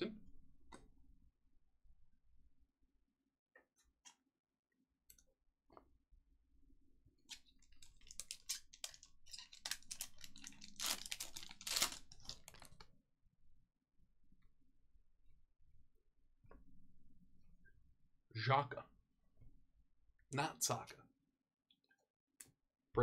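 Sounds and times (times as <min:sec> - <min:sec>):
trading cards rustling and clicking: 0:07.3 - 0:12.9.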